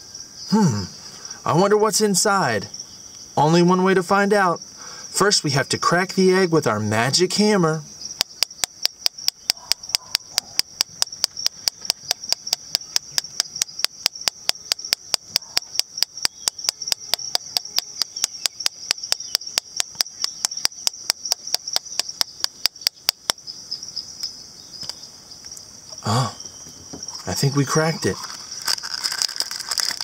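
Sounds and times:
toy hammer tapping plastic egg: 8.2 - 23.4.

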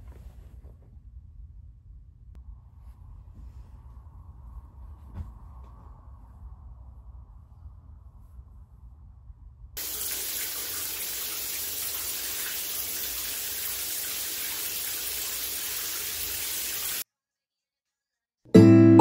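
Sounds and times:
faint low hum: 0.0 - 9.8
shower water hissing: 9.8 - 17.0.

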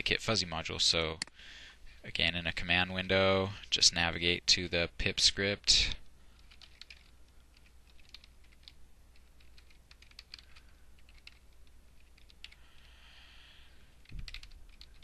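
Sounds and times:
typing on computer keyboard: 6.4 - 12.6, 14.0 - 15.0.

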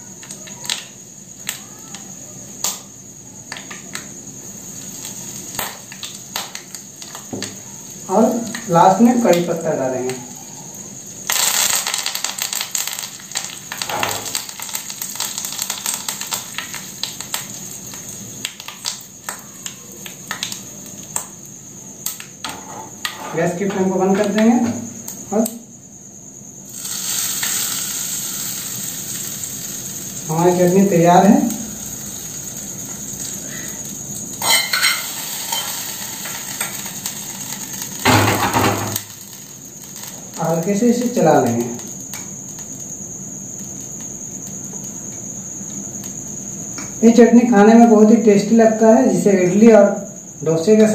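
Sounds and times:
seeds crackling and popping in oil: 0.0 - 25.6, 26.4 - 47.0
leaves sizzling in hot oil: 0.0 - 50.9
spoon scraping and clinking on pan: 34.4 - 35.9
pan clattering on stove: 34.4 - 36.9, 38.0 - 39.1.

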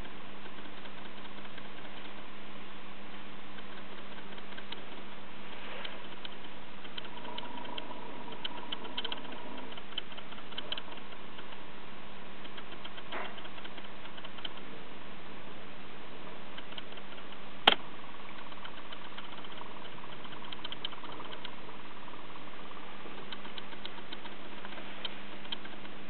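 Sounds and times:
light ticks: 0.0 - 2.3, 3.1 - 5.2, 5.8 - 11.6, 12.4 - 14.7, 16.5 - 26.0
low machine hum: 0.0 - 26.0
sharp click: 5.8 - 11.6, 16.6 - 21.6.

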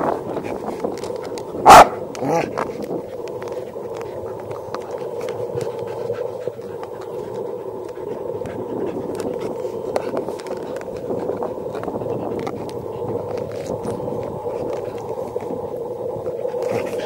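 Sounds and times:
dog teeth on plastic frisbee: 0.0 - 15.6
dog panting: 0.1 - 15.6, 16.2 - 17.0.

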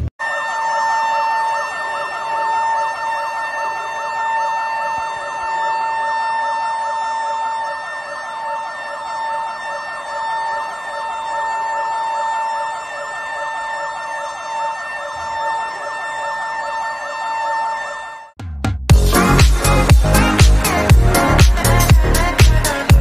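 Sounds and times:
electronic alarm siren wailing: 0.0 - 18.4, 19.0 - 23.0.

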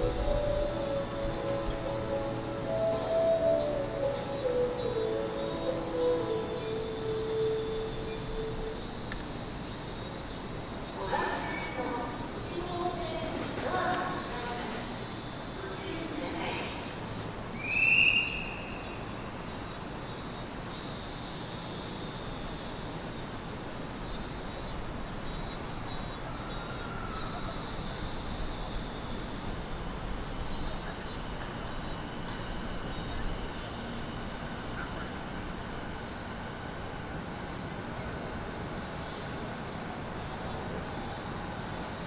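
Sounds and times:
steady high hiss: 0.0 - 42.0
rising whistle-like call: 17.6 - 18.8.

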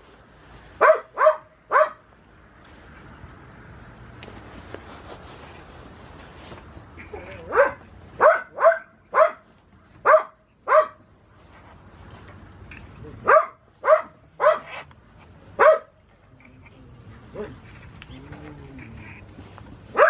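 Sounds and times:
dog barking: 0.8 - 2.0, 7.2 - 9.4, 10.0 - 11.0, 13.2 - 14.8, 15.6 - 16.0.

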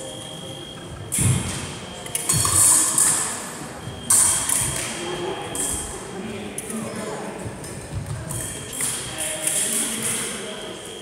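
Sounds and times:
high electronic beep: 0.0 - 0.8
fencing foils clashing and scraping: 1.2 - 5.9, 7.6 - 10.4.

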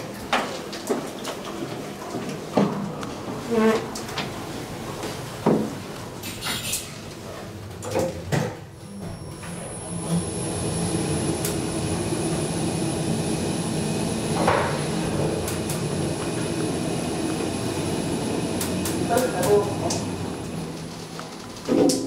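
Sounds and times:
elevator running rumble: 8.9 - 21.7.

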